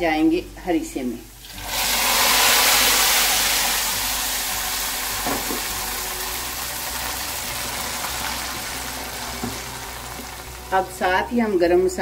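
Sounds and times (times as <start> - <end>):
hot oil sizzling: 1.2 - 11.4.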